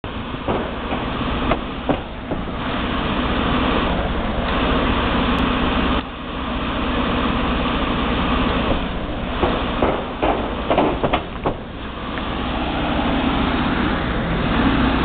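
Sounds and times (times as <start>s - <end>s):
van engine idling: 0.0s - 15.0s
cars passing: 7.3s - 15.0s.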